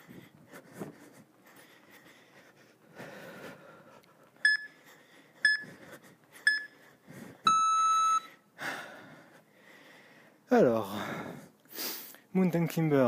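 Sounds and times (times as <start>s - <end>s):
short electronic beeps: 5.5s - 5.7s, 6.5s - 6.7s, 7.5s - 8.3s.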